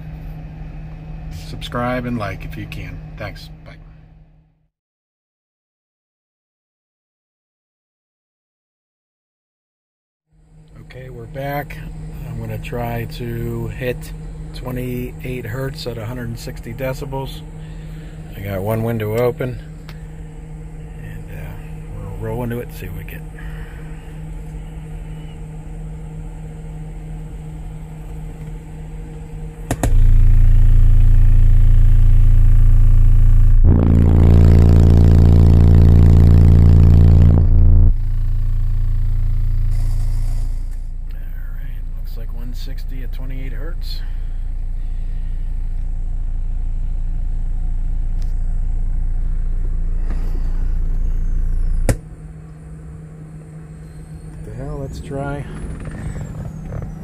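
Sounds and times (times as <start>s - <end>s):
low hum: 10.3s - 57.0s
loud distorted low test tone: 10.7s - 24.8s, 29.5s - 57.0s.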